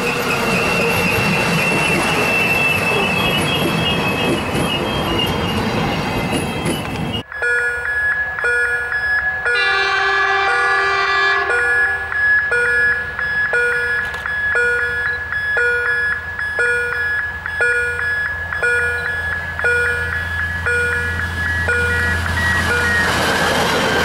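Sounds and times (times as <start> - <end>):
diesel railcar rumble: 0.0 - 24.0
electronic level crossing bell ringing: 7.2 - 23.1
train horn: 9.6 - 12.1.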